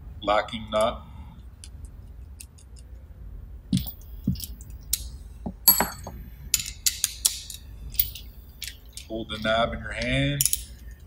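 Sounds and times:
metal parts and tools clinking: 0:02.1 - 0:03.0, 0:03.8 - 0:11.0.

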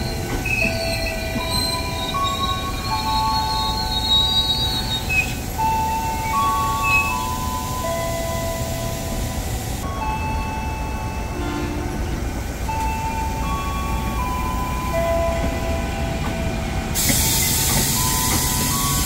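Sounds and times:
steady high tones: 0:00.0 - 0:11.6
train rumble: 0:00.0 - 0:19.0
loud hiss: 0:17.0 - 0:19.0.

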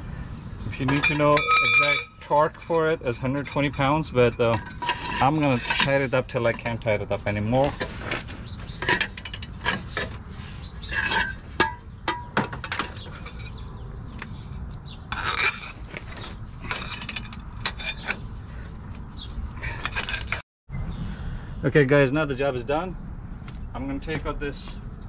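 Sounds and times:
metal tools clicking and scraping: 0:00.8 - 0:18.3, 0:19.6 - 0:20.4
ringing metal clink: 0:00.9 - 0:04.9.

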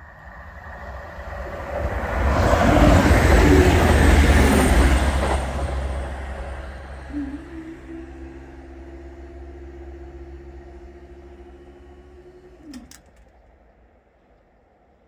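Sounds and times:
low rumble: 0:01.6 - 0:12.7
barrier motor humming: 0:01.9 - 0:13.9.

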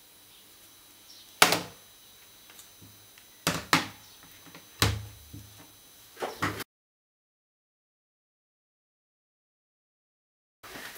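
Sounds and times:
plastic parts clunking on wood: 0:03.5 - 0:05.6.

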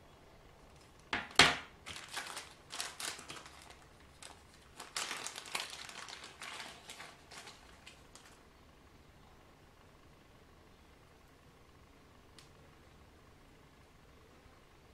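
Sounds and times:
plastic packaging crinkling: 0:00.8 - 0:08.4.

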